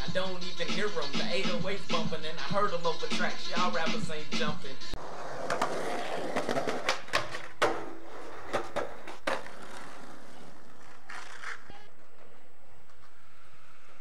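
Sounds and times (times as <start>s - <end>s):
skateboard wheels rolling: 5.0s - 14.0s
skateboard clacks: 5.4s - 13.3s.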